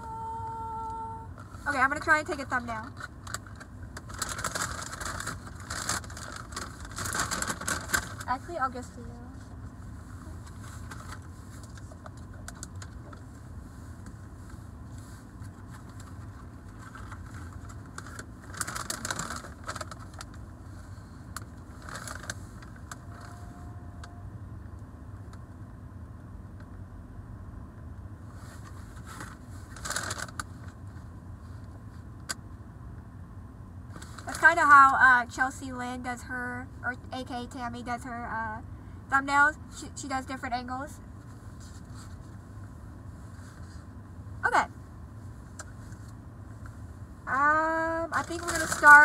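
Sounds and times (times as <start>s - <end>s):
car cabin rumble: 0.0s - 26.9s, 44.4s - 49.0s
paper bag rustling: 3.3s - 8.3s, 16.8s - 20.3s, 29.0s - 30.4s, 48.2s - 49.0s.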